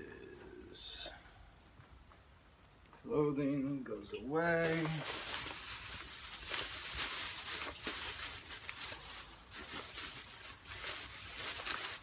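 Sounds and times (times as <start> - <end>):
plastic bags rustling: 4.4 - 12.0.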